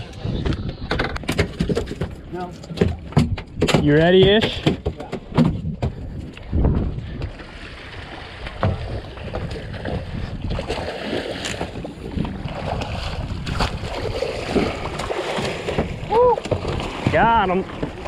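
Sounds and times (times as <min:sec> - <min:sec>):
water noise: 0:00.0 - 0:18.0
wind: 0:00.0 - 0:18.0
knocks and clatter on deck: 0:00.8 - 0:06.8.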